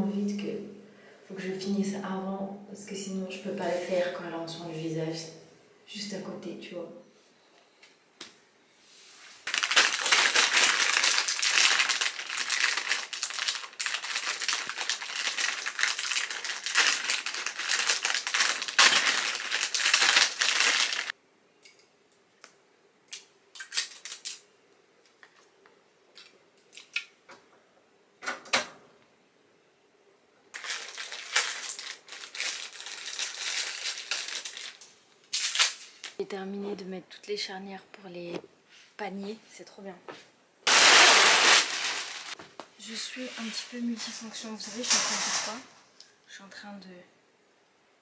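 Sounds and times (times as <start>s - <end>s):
plastic packaging crinkling and tearing: 9.4s - 21.1s, 23.6s - 24.4s, 30.5s - 36.2s, 40.7s - 42.4s.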